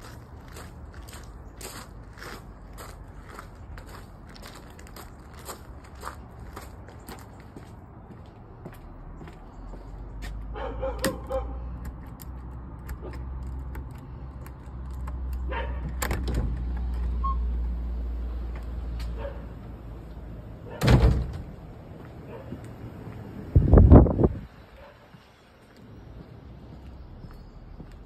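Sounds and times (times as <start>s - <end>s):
gate banging: 20.7s - 21.6s.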